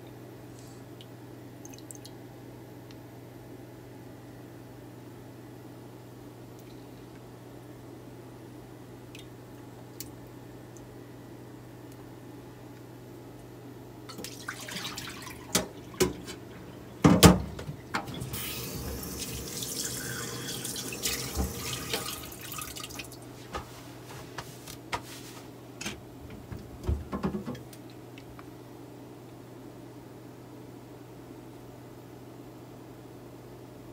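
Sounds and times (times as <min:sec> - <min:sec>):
water sloshing in metal pot: 0:14.1 - 0:23.2
running water: 0:14.1 - 0:23.3.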